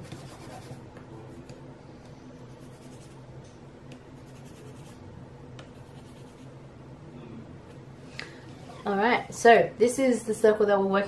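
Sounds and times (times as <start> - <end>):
pencil scratching on paper: 0.0 - 0.8, 2.6 - 3.2, 4.2 - 5.0, 5.8 - 6.5
steady low hum: 0.0 - 11.0.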